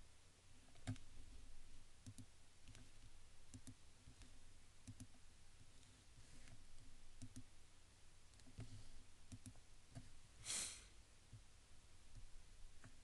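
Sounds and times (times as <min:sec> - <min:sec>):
computer mouse clicks: 0:00.7 - 0:01.1, 0:02.0 - 0:07.5, 0:08.3 - 0:10.1
short hiss: 0:10.4 - 0:10.9.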